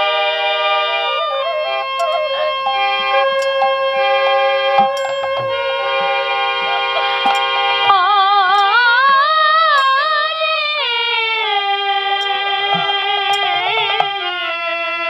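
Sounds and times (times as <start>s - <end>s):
bamboo flute: 0.0s - 15.0s
harmonium: 0.0s - 15.0s
woman singing: 7.9s - 11.5s.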